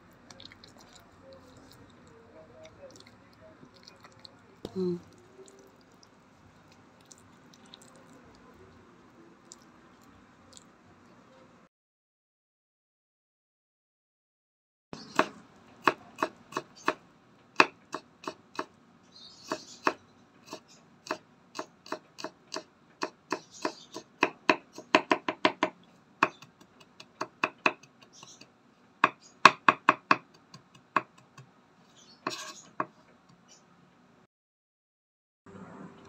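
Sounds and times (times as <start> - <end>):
soft knife scrapes: 32.0 - 32.7.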